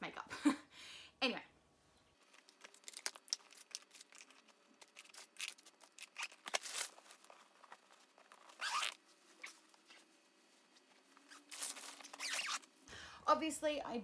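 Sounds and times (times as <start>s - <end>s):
bag rustling: 2.2s - 12.7s.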